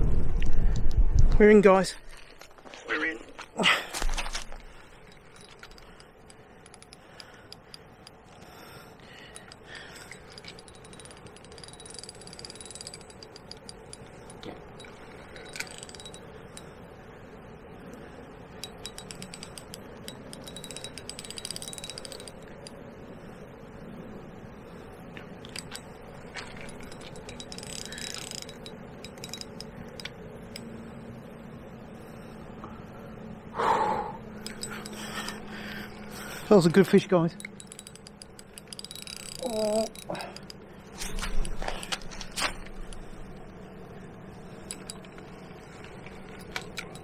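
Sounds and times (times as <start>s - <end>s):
fishing reel ratchet ticking: 5.1s - 8.4s, 9.1s - 16.8s, 18.6s - 22.8s, 25.4s - 30.6s, 34.4s - 36.5s, 37.4s - 43.4s, 44.5s - 47.0s.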